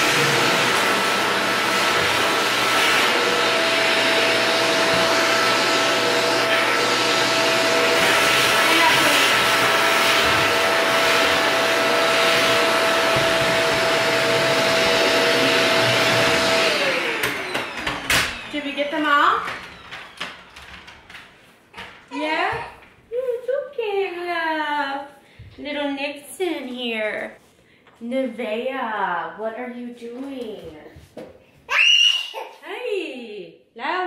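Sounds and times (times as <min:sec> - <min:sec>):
vacuum cleaner motor whine: 0:00.0 - 0:21.0.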